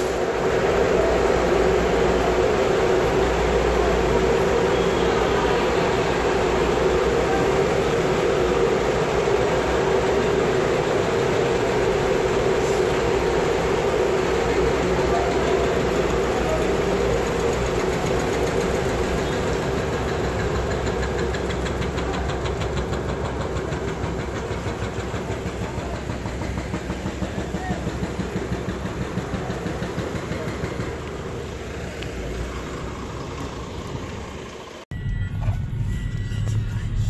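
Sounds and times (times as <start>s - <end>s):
ferry engine and machinery noise: 0.0s - 37.0s
faint voices: 12.3s - 19.7s, 21.1s - 31.8s.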